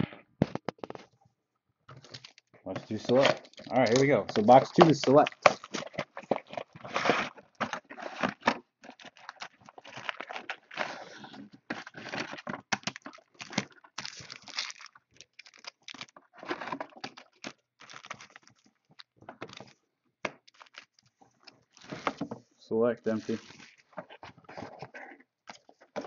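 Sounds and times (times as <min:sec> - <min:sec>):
plastic shrink wrap tearing: 0:02.0 - 0:19.8, 0:20.4 - 0:22.2, 0:23.1 - 0:23.8.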